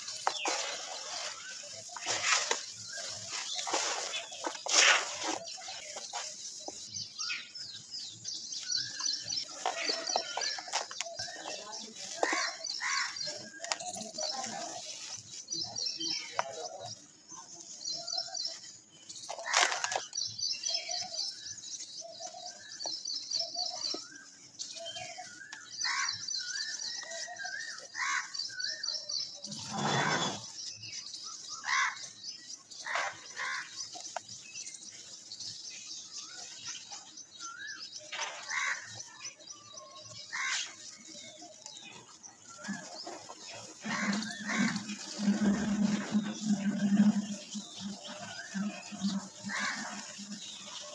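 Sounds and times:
dirt crushed in a metal bowl: 0.0 - 7.3, 8.3 - 14.8, 41.0 - 50.9
birds chirping trills: 0.0 - 50.9.

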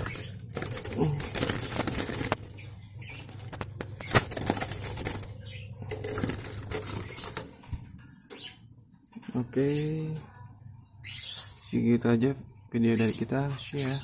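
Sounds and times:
bird scrabbling and fluttering: 0.0 - 8.5.

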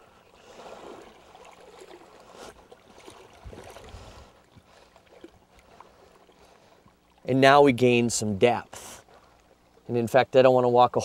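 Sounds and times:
water sloshing around legs: 0.2 - 7.4
water splashing: 0.3 - 9.8.

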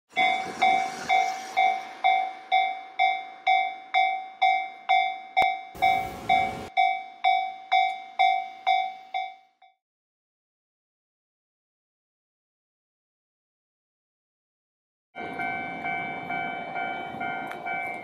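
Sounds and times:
level-crossing warning bell: 0.1 - 9.8, 15.2 - 18.0.

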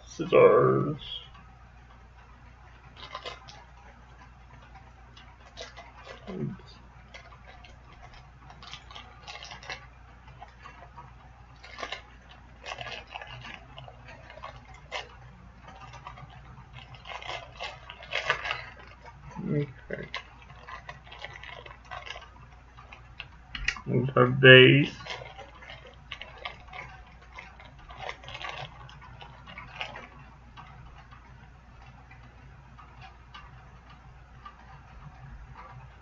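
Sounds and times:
hands handling plastic packaging: 5.2 - 23.8.

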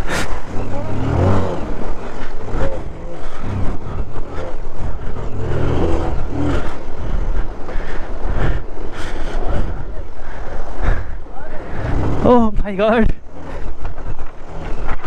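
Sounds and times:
motorcycle engine revving: 0.0 - 7.6, 11.6 - 15.0
water splashing under wheels: 0.0 - 12.6.

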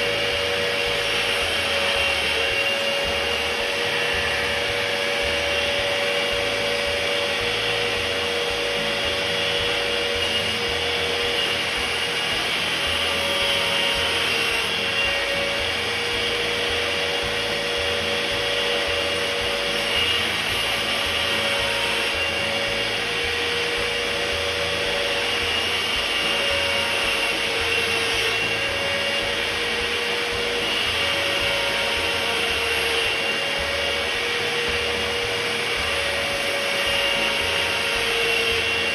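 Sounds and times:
power tool whining: 0.0 - 38.9.

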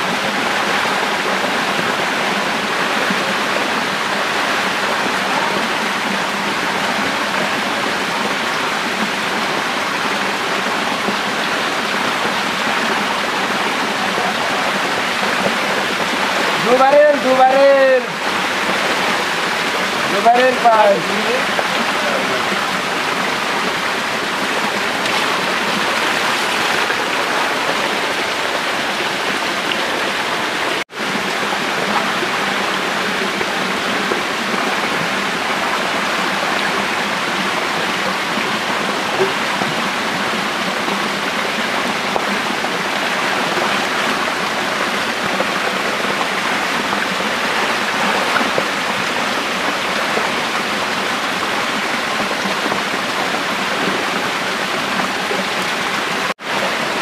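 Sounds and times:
feet wading: 21.4 - 31.0.

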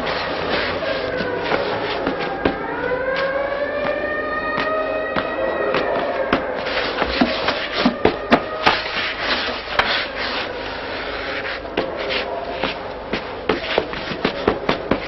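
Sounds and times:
harsh rasping scraping: 5.8 - 15.0.

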